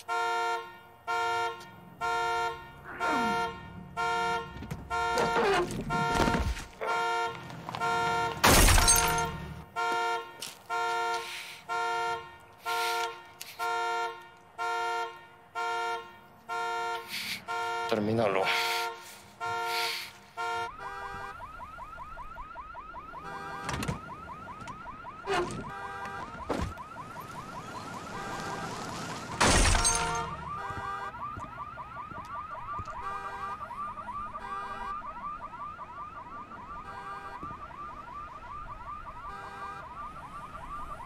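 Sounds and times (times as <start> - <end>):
car alarm warbling: 2.0 - 9.6, 20.4 - 41.0.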